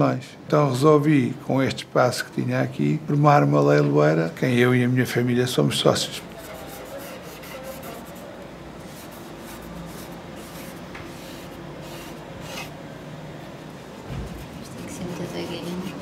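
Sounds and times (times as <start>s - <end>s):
cotton swab rubbing painting: 6.3s - 12.8s, 13.8s - 16.0s.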